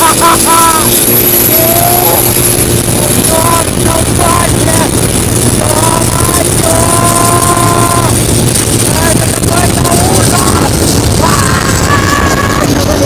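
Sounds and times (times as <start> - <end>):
boat engine roaring: 0.0 - 13.0
pitched gliding tones: 0.0 - 13.0
steady high whine: 0.0 - 13.0
water and wind rushing: 0.0 - 13.0.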